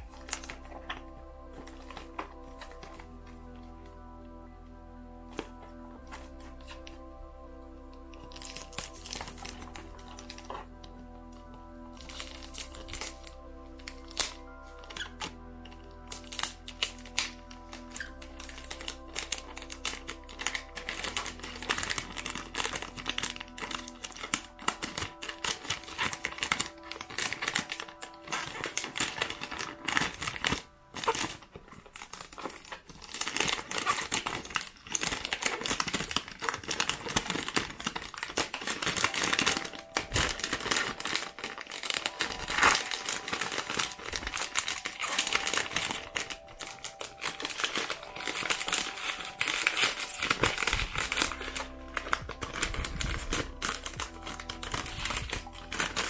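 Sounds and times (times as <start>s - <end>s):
cellophane wrap crinkling: 0.0s - 4.3s, 5.2s - 56.0s.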